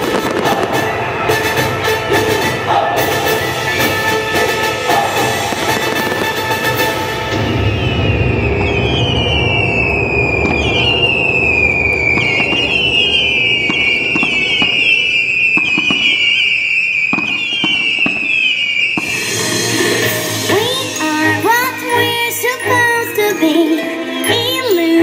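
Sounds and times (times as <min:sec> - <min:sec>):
fireworks cracks: 0:00.0 - 0:20.0
fireworks whistling: 0:00.0 - 0:22.8
low rumble: 0:04.8 - 0:15.4.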